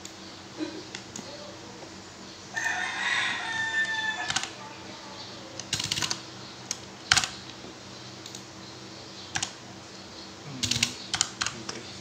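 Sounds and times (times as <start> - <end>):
faint low hum: 0.0 - 12.0
computer keyboard keystrokes: 4.2 - 4.5, 5.6 - 7.4, 8.2 - 8.5, 9.3 - 9.6, 10.6 - 11.8.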